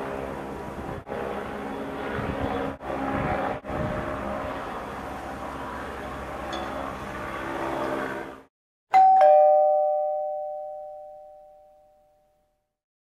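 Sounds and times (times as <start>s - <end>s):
airship engine drone: 0.0s - 8.5s
two-note ding-dong chime: 8.9s - 12.5s.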